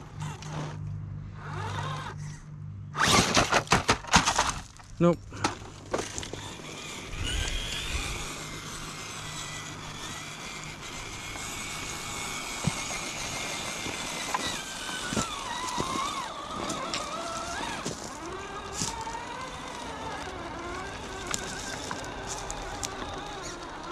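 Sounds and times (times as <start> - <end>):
electric motor and gears whining: 0.0 - 23.9
tires knocking on rock: 9.7 - 23.9.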